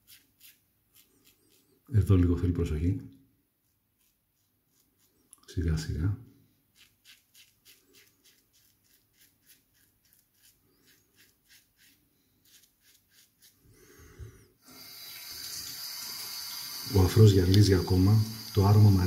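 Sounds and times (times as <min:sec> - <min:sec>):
razor scraping stubble: 0:00.0 - 0:01.9, 0:03.6 - 0:05.6, 0:06.7 - 0:13.6
tap water running into sink: 0:14.7 - 0:19.0.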